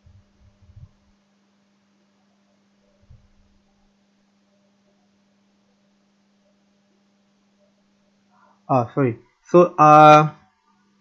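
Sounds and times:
faint low hum and hiss: 0.0 - 11.0.

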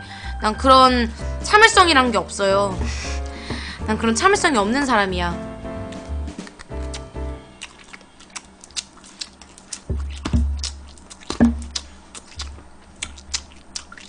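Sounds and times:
quiet background music: 0.0 - 12.9
chewing sounds: 5.9 - 14.0.

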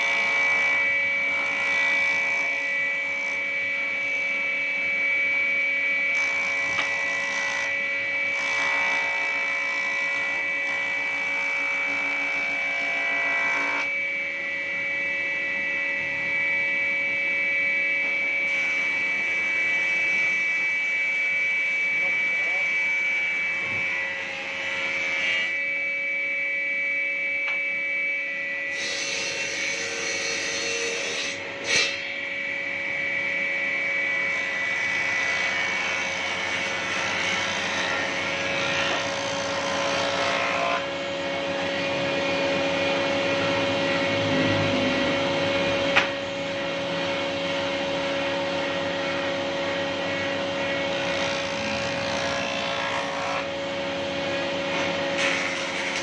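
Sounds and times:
jointer machine whining: 28.7 - 56.0.

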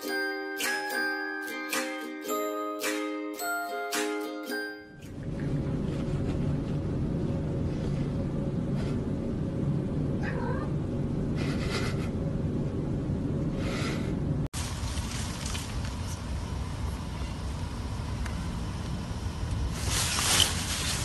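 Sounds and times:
low background rumble: 5.1 - 21.0
cat meowing: 10.2 - 10.7.

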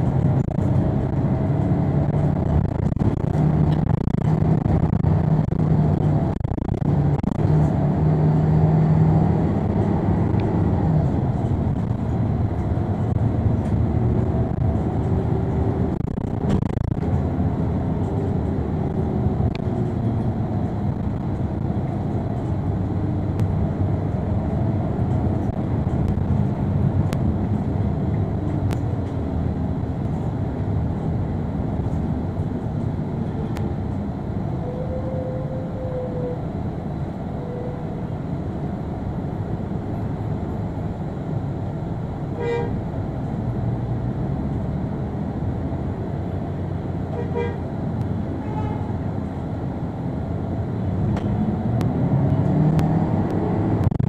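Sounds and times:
bus engine and road rumble: 0.0 - 54.0
bus horn honks: 34.6 - 36.4, 42.3 - 42.9, 47.1 - 47.8, 48.4 - 49.0.

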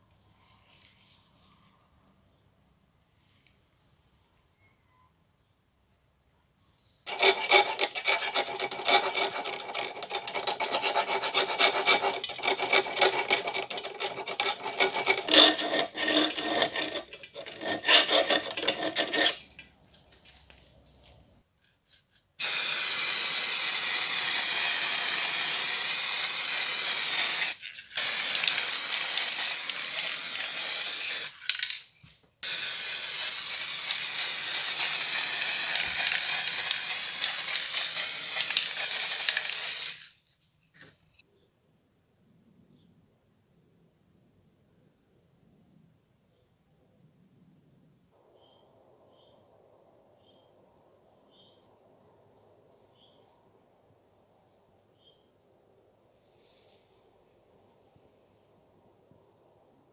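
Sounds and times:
file rasping on metal: 7.1 - 19.7
aerosol spray can hissing: 22.4 - 31.7, 32.4 - 40.2.

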